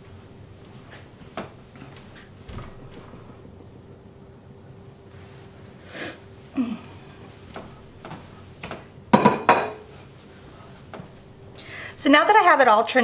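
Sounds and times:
kitchen utensils knocking and clinking: 9.2 - 9.8.

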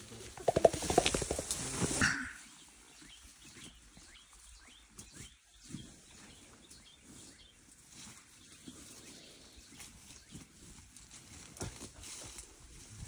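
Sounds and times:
rustles and snaps of undergrowth: 0.4 - 2.4, 9.7 - 13.0.

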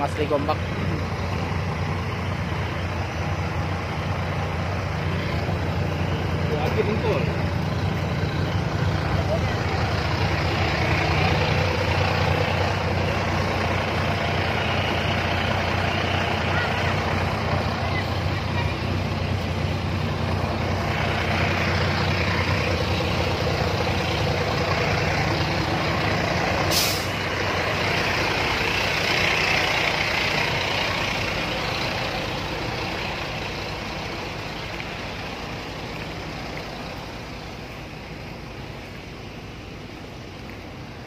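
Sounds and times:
heavy truck engine running: 0.0 - 41.0
air brakes hissing: 26.5 - 27.3.

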